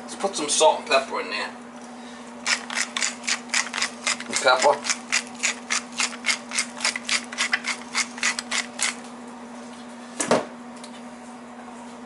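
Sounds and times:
steady low hum: 0.0 - 12.0
pepper grinder rasping: 2.4 - 9.1.

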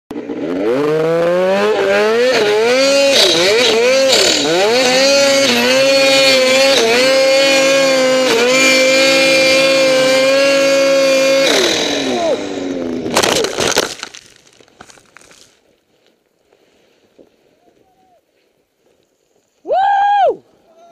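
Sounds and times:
snowmobile engine revving: 0.1 - 13.5.

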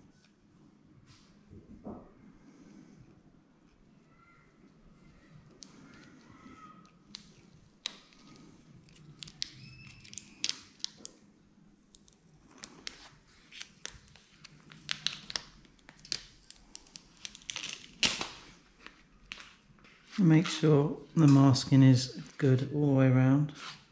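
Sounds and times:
paper crackling and crinkling: 7.1 - 11.1, 12.0 - 20.6.

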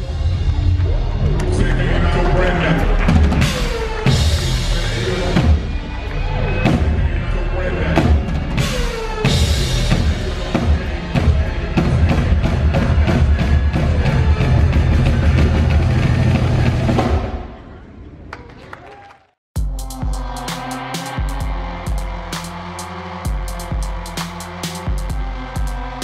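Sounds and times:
drum kit solo: 19.6 - 26.0.

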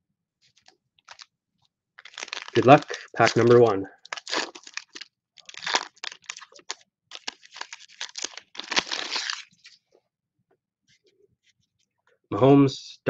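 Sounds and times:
foil wrapper crinkling: 0.5 - 1.3, 2.0 - 9.8.

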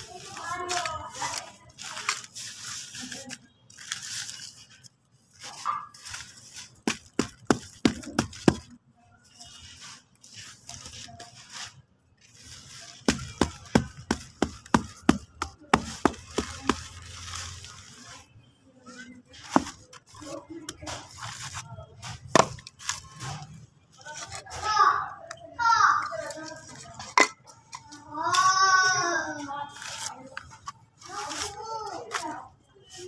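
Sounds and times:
hand slapping damp cement mix: 13.0 - 17.1.

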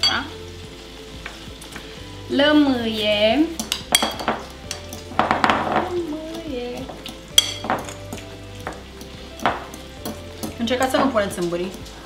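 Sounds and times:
chickpeas sizzling in frying pan: 0.0 - 12.0
cutlery clinking against glass bowl: 3.6 - 5.9, 6.8 - 10.6.

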